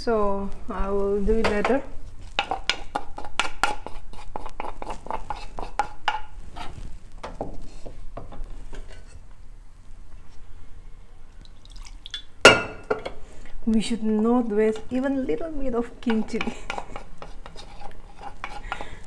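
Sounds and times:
metal spoon scraping bowl and pot: 0:16.0 - 0:18.9.

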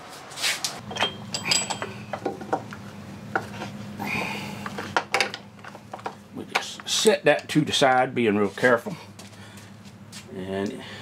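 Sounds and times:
wrench clinking on metal nuts: 0:00.8 - 0:02.2.

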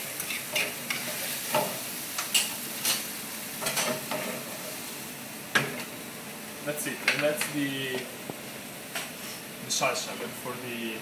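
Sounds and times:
food sizzling in a pan: 0:00.0 - 0:10.9.

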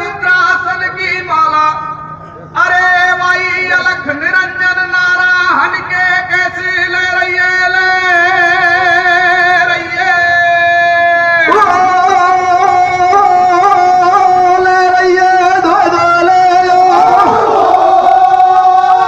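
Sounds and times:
singer through loudspeakers: 0:00.0 - 0:19.0.

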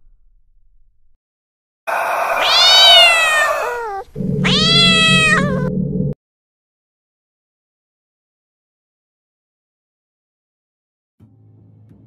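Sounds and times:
cat meowing: 0:01.9 - 0:05.7.

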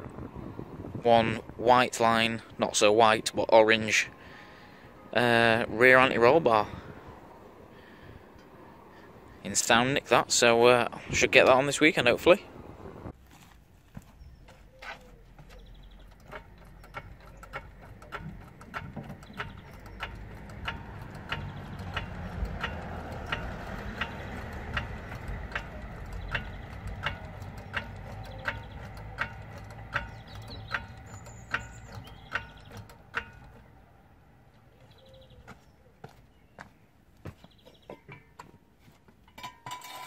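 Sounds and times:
trolley jack pumping clicks: 0:15.4 - 0:33.8.

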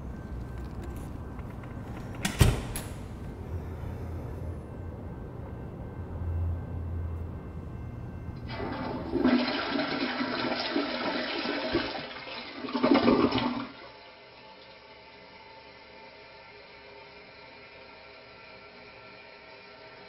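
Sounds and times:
low steady rumble: 0:00.0 - 0:09.2
toilet flushing: 0:08.4 - 0:20.0.

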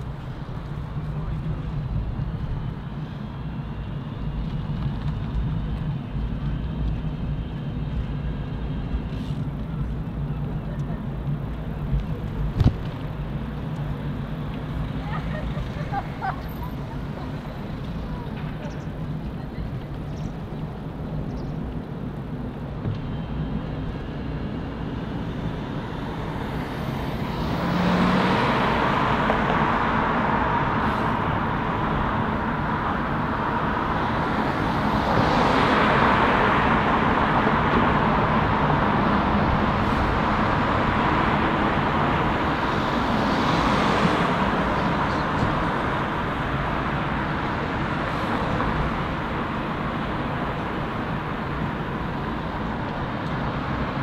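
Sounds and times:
vehicles passing close by: 0:00.0 - 0:54.0.

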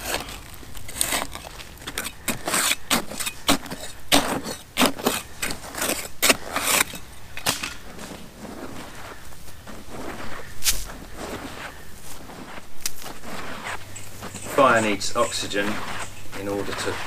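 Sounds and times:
blade digging into earth: 0:00.0 - 0:08.1, 0:10.4 - 0:11.8.

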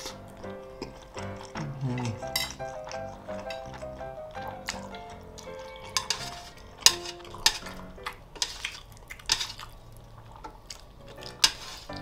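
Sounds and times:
chopsticks scraping metal tray: 0:05.9 - 0:07.8, 0:11.4 - 0:12.0.

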